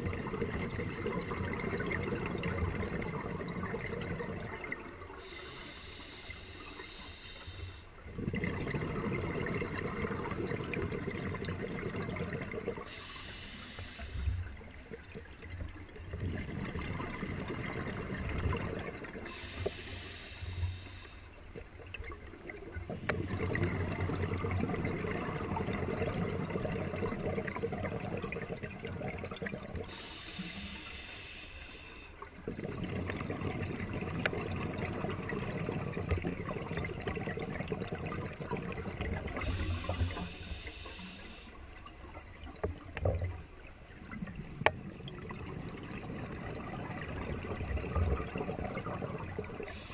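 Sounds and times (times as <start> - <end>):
bubbling exhaust underwater: 0.0 - 49.9
regulator hissing inhale: 5.2 - 8.0, 12.8 - 14.5, 19.3 - 21.4, 29.8 - 32.2, 39.4 - 41.7, 49.6 - 49.9.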